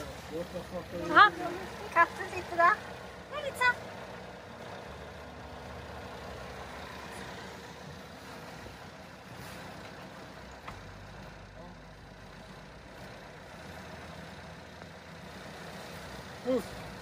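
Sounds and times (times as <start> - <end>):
boat engine humming: 0.0 - 17.0
wind: 0.0 - 17.0.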